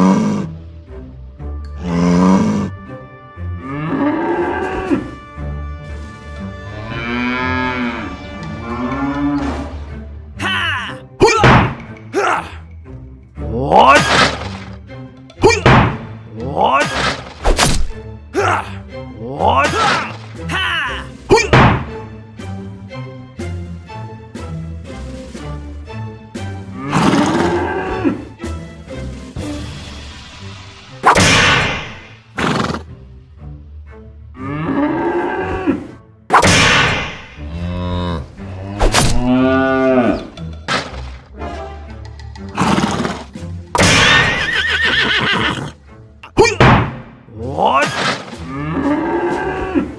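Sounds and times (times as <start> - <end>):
background music: 0.0 - 49.9
cow mooing: 3.6 - 5.2, 6.6 - 9.7, 37.4 - 40.4.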